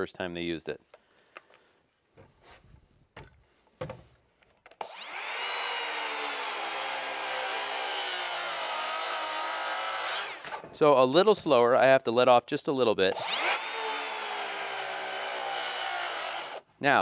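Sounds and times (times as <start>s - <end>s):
handling knocks: 3.1s - 4.2s
circular saw cutting wood: 4.8s - 10.8s, 13.1s - 16.7s.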